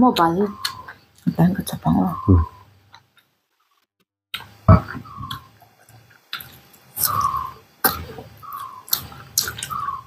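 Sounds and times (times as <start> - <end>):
chewing and lip-smacking: 5.3 - 7.3, 7.9 - 9.9.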